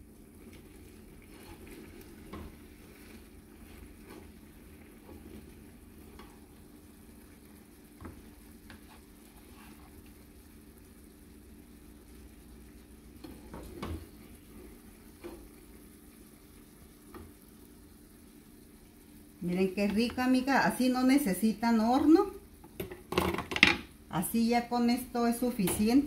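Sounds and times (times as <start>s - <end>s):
sauce simmering in a frying pan: 0.0s - 26.0s
spatula scraping and knocking pan: 1.2s - 6.5s.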